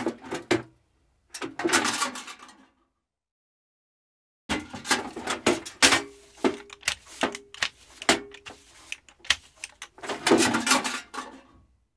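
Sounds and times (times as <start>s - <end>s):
broom and dustpan knocks: 4.5s - 10.9s.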